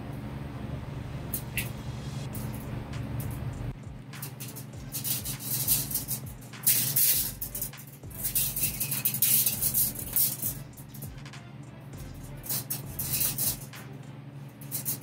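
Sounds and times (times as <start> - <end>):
metal tube rattling and scraping: 4.2 - 11.2, 12.0 - 13.9, 14.6 - 15.0.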